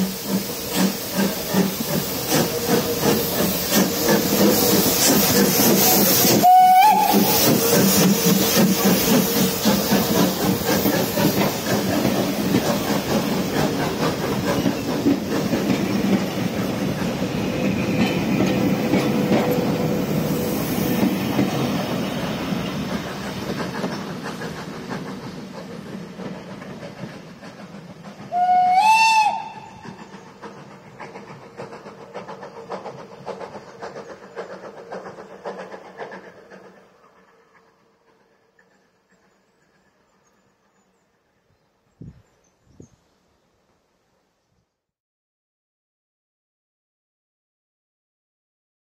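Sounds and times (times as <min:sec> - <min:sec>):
train wheels clicking over rail joints: 0:00.0 - 0:41.4
steam whistle blast: 0:05.8 - 0:08.4, 0:28.3 - 0:30.0.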